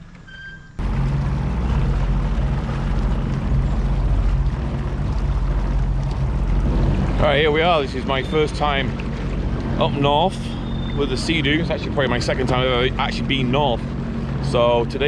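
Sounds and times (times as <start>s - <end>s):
water noise: 0.0s - 15.0s
watercraft engine humming: 0.0s - 15.0s.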